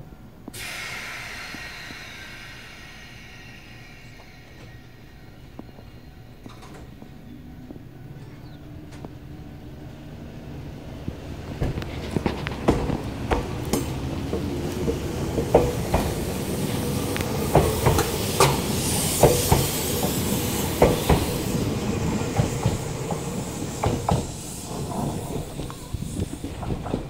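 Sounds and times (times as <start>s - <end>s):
electric train running: 0.6s - 8.2s, 11.6s - 27.0s
wheels clicking over rail joints: 11.6s - 27.0s.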